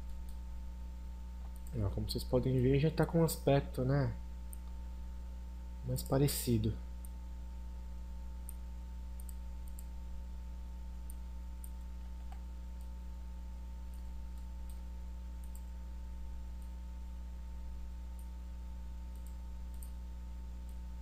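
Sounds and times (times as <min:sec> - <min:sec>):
low electrical hum: 0:00.0 - 0:21.0
computer mouse clicks: 0:01.4 - 0:01.8, 0:09.2 - 0:09.9, 0:15.4 - 0:15.7, 0:19.1 - 0:20.0.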